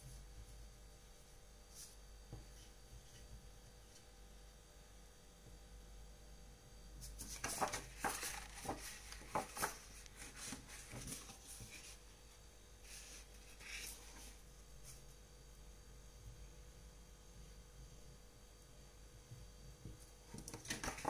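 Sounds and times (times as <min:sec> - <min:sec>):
paintbrush brushing and tapping paper: 0:07.0 - 0:12.0, 0:20.3 - 0:21.0.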